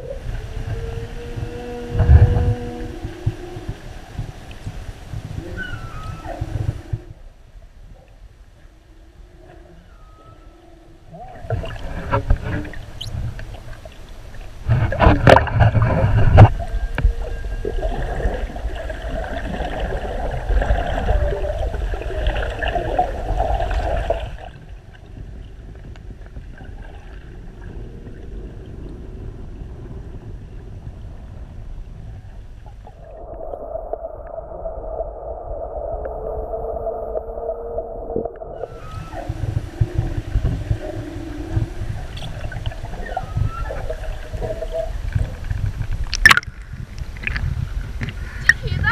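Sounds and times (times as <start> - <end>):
underwater water rushing and bubbling: 0.0 - 48.9
knocks and splashes: 14.6 - 17.1, 42.0 - 46.6.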